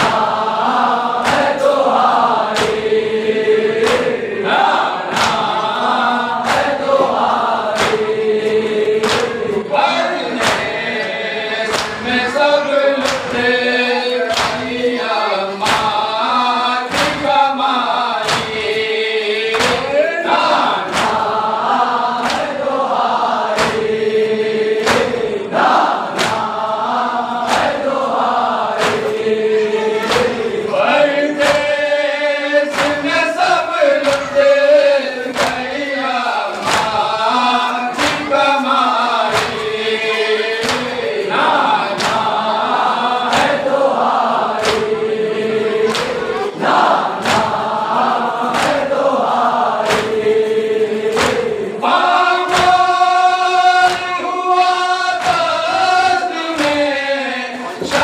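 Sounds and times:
chest beating slaps: 0:00.0 - 0:09.6, 0:10.3 - 0:11.0, 0:11.7 - 0:12.3, 0:14.3 - 0:14.8, 0:15.6 - 0:16.2, 0:18.2 - 0:30.6, 0:31.4 - 0:31.8, 0:32.7 - 0:34.5, 0:35.2 - 0:35.9, 0:36.5 - 0:53.2
men chanting in unison: 0:00.0 - 0:58.0.

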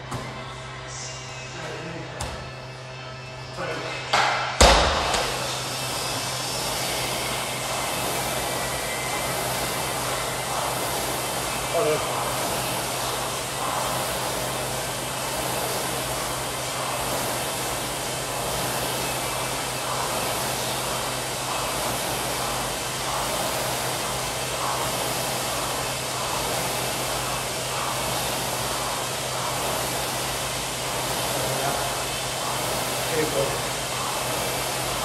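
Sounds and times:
rowing machine fan whirring: 0:00.0 - 0:35.0.

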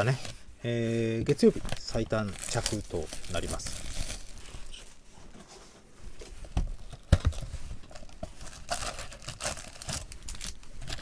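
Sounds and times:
cardboard lid tearing and rustling: 0:06.8 - 0:11.0.

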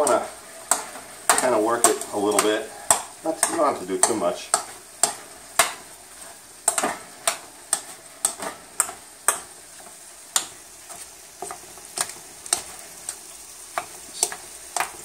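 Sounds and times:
wooden spoon tapping a bowl: 0:00.0 - 0:05.8.

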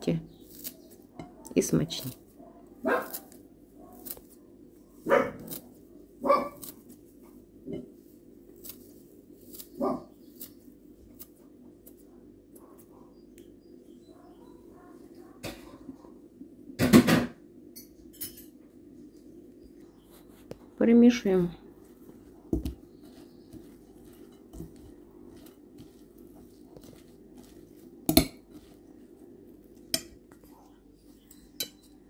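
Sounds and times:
scissors snipping herbs: 0:00.3 - 0:02.2, 0:02.9 - 0:04.4, 0:05.2 - 0:07.0, 0:08.5 - 0:12.8.

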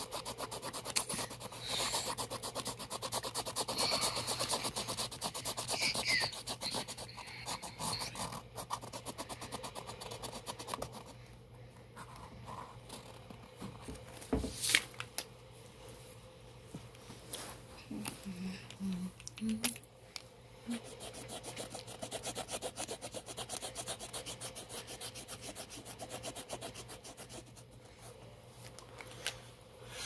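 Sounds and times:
marker scribbling on paper: 0:00.0 - 0:11.1, 0:20.7 - 0:27.8.

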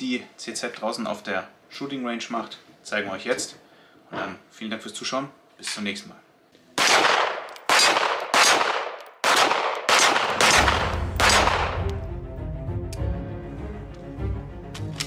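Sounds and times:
pistol shots: 0:06.8 - 0:11.9
background music: 0:10.4 - 0:15.0.

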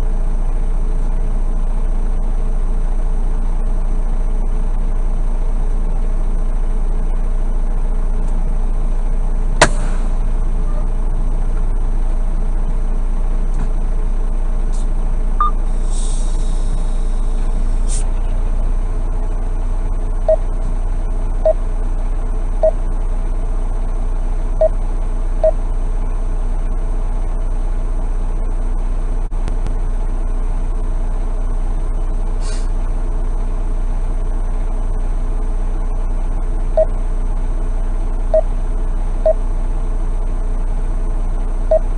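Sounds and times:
diesel truck engine idling: 0:00.0 - 0:41.9
sharp click: 0:09.6 - 0:10.1
short hiss: 0:09.6 - 0:10.2, 0:15.7 - 0:18.2, 0:32.4 - 0:32.7
short beeps: 0:15.4 - 0:15.6, 0:20.3 - 0:20.5.

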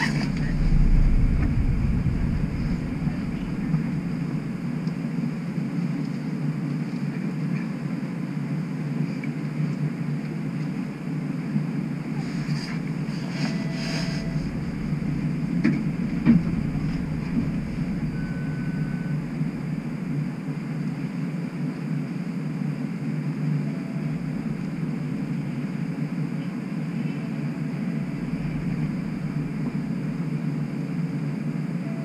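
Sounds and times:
streetcar low hum: 0:00.0 - 0:32.0
brief high beep: 0:17.9 - 0:19.2.

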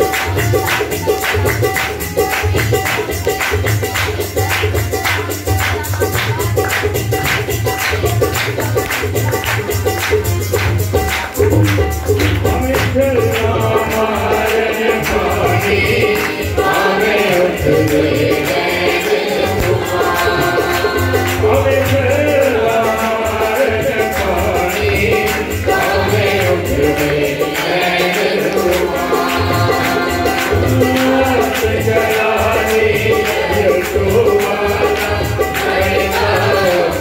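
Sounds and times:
harmonium: 0:00.0 - 0:37.0
tabla rhythm: 0:00.0 - 0:37.0
man singing: 0:11.4 - 0:37.0.

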